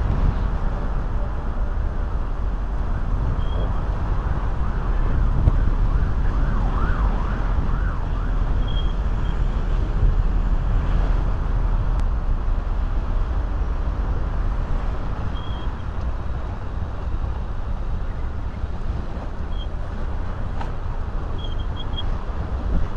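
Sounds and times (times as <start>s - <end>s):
city traffic: 0.0s - 22.9s
siren wailing: 4.4s - 8.6s.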